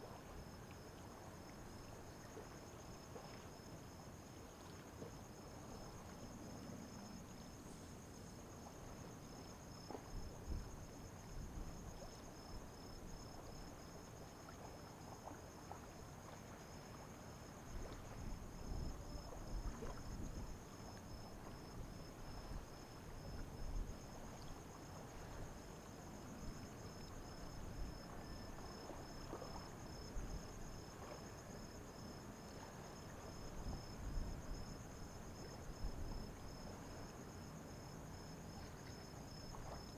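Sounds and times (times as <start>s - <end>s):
crickets trilling: 0.0s - 39.9s
insect chirps pulsing: 0.0s - 39.9s.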